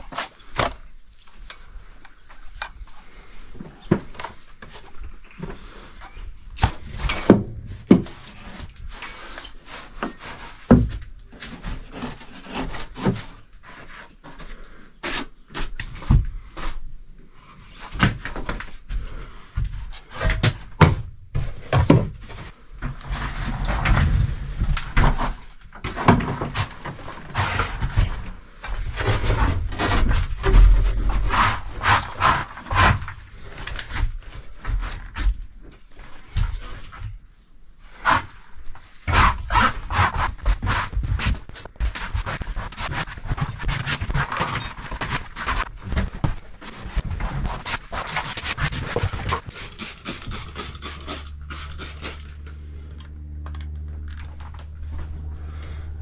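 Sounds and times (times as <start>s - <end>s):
scraping on wood: 3.0s - 37.1s, 37.9s - 56.0s
knocks and bumps on wood: 6.6s - 8.3s, 10.7s - 13.4s, 15.0s - 16.7s, 18.0s - 33.2s.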